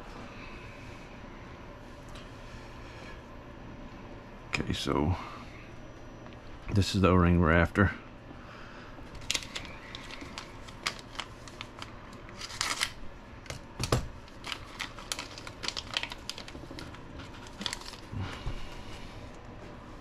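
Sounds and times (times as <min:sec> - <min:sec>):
plastic bags crinkling: 0:09.1 - 0:18.2.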